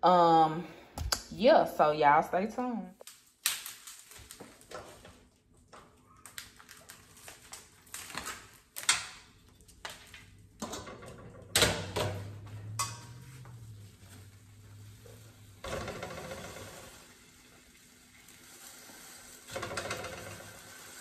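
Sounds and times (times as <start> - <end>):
plastic packaging crinkling: 3.0 - 10.6
low steady hum: 9.4 - 18.3.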